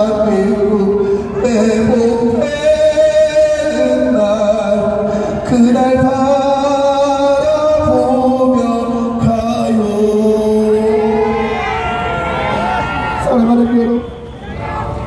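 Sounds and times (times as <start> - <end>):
man singing slow hymn-like song: 0.0 - 11.3.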